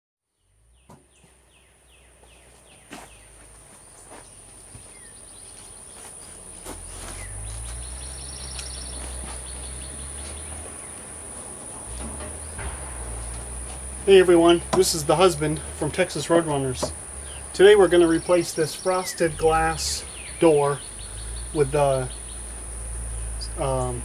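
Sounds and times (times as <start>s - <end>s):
pulsed buzz: 3.2s - 24.0s
low wind rumble: 6.8s - 24.0s.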